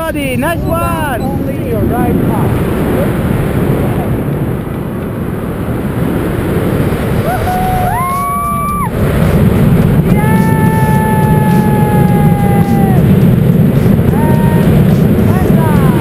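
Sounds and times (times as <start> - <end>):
wind buffeting microphone: 0.0 - 16.0
person whooping: 7.2 - 9.0, 10.2 - 13.1.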